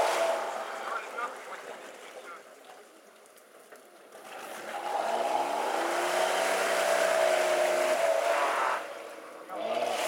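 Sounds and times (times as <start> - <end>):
wheels churning mud: 0.0 - 10.0
engine revving hard: 4.8 - 8.9, 9.6 - 10.0.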